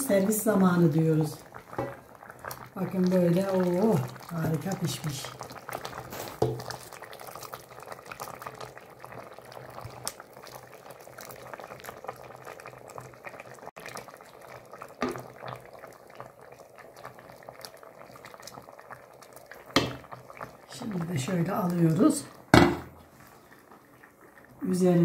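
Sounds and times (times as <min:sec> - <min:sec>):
soup bubbling at a boil: 0:00.0 - 0:25.0
ladle knock: 0:19.8 - 0:20.0, 0:22.5 - 0:23.0.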